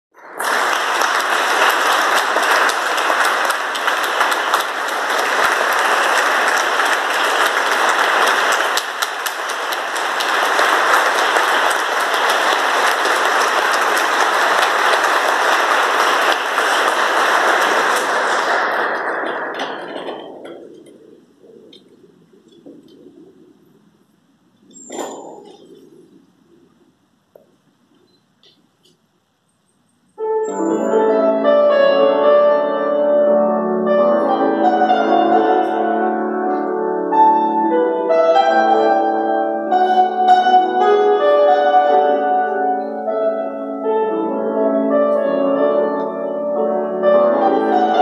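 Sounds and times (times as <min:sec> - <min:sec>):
audience applauding: 0:00.1 - 0:23.6.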